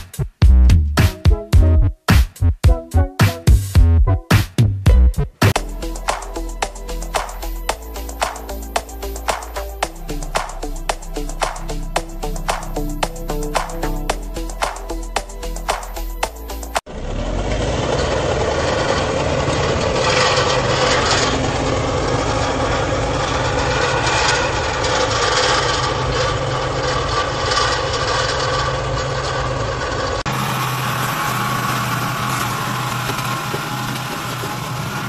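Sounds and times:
small farm machine engines running: 0:05.5 - 0:35.0
brush mower running through weeds: 0:17.1 - 0:35.0.

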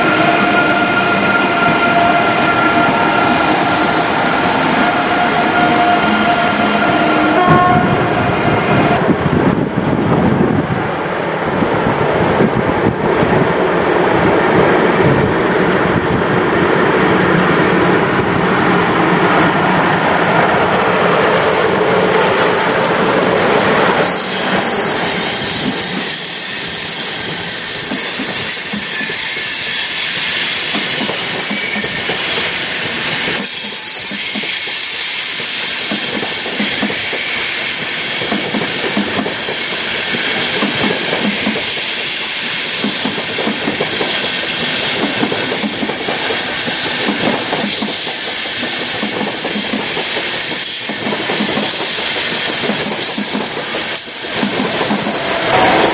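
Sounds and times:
rhythmic clicking of train wheels: 0:00.0 - 0:10.2, 0:11.5 - 0:55.9
train rumble: 0:00.0 - 0:55.9
high steady squeal: 0:24.0 - 0:43.1.

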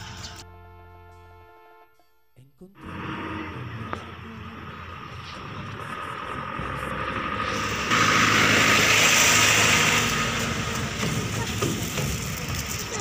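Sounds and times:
vehicle passing close by: 0:02.8 - 0:13.0.

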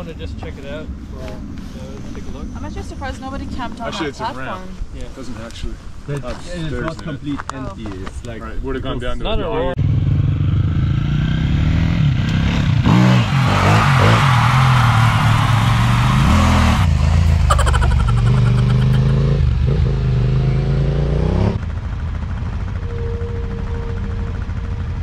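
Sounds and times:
motorcycle engine revving: 0:09.8 - 0:25.0.

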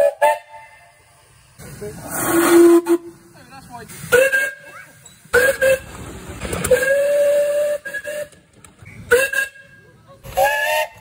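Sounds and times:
steam locomotive whistle: 0:00.0 - 0:01.0, 0:02.1 - 0:03.1, 0:04.1 - 0:04.7, 0:05.3 - 0:05.9, 0:06.6 - 0:08.4, 0:09.0 - 0:11.0.

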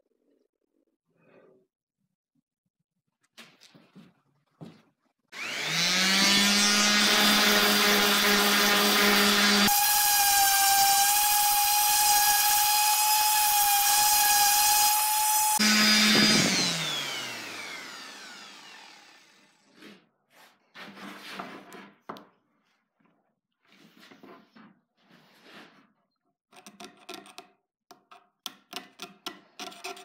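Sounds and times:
orbital sander whining: 0:05.4 - 0:19.6.

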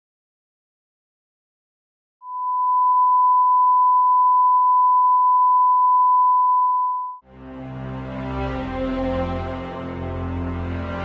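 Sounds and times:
pure test tone: 0:02.2 - 0:07.2
background music with drone: 0:07.3 - 0:11.0.

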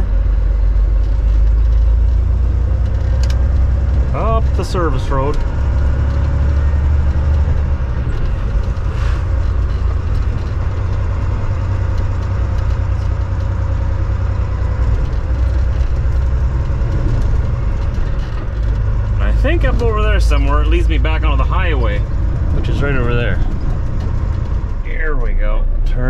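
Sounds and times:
road noise: 0:00.0 - 0:26.0
truck diesel engine rumble: 0:00.0 - 0:26.0.

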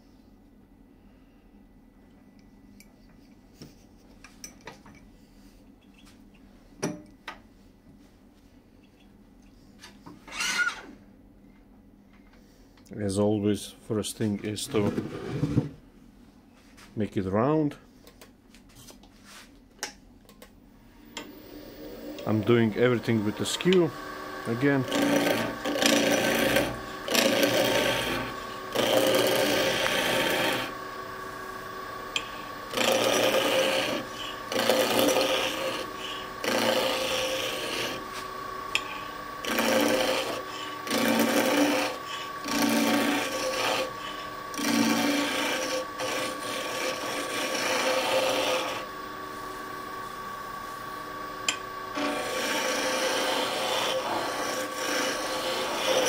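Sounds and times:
lathe humming: 0:21.1 - 0:56.0
chisel cutting wood on lathe: 0:21.2 - 0:56.0.

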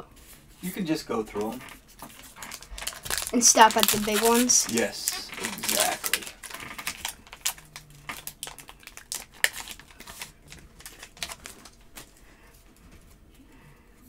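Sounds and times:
cards flipped through by hand: 0:01.4 - 0:12.1.

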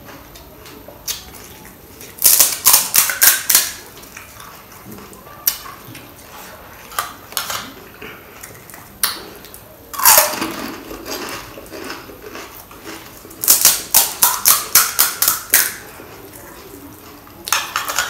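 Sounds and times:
crunchy chewing: 0:00.1 - 0:18.0
crisp shell cracking: 0:02.0 - 0:04.3, 0:08.4 - 0:15.9.

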